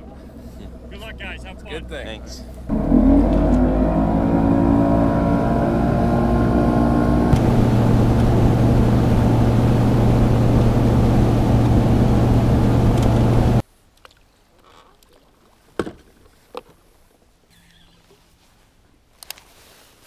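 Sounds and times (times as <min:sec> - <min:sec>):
outboard motor running: 0:00.0 - 0:13.6
wind and water rushing: 0:02.7 - 0:13.6.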